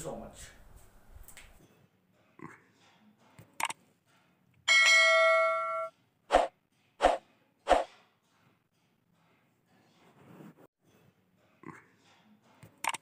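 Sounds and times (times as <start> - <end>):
ringing bell chime: 4.7 - 5.9.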